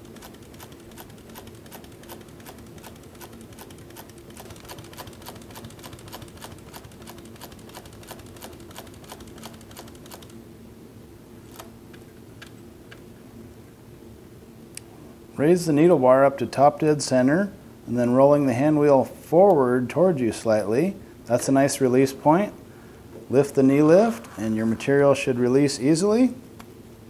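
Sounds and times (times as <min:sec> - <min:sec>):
sewing machine motor hum: 0:00.0 - 0:10.4, 0:11.4 - 0:11.8
sewing machine stitching leather: 0:00.0 - 0:10.4.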